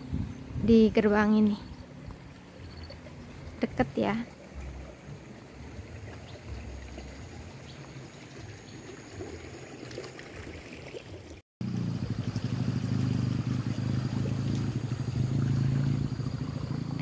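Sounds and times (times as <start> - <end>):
flowing water: 0.0 - 17.0
vehicle engine running: 11.6 - 17.0.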